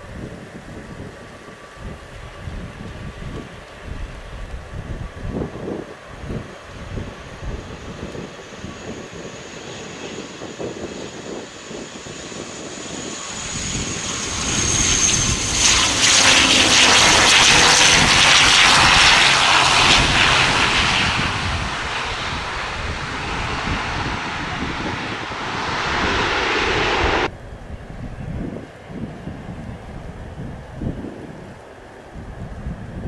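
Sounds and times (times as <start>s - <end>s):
faint wind: 0.0s - 33.0s
turboprop plane landing: 0.0s - 33.0s.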